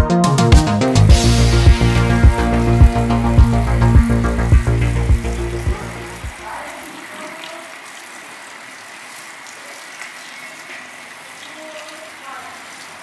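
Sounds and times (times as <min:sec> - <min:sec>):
background music: 0:00.0 - 0:06.4
water splashing into stone basin: 0:00.9 - 0:13.0.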